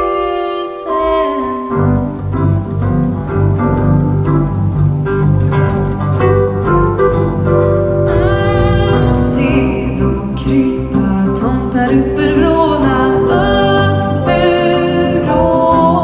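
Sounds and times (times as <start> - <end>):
woman singing into a microphone: 0.0 - 2.1, 8.1 - 16.0
live instrumental accompaniment: 0.0 - 16.0.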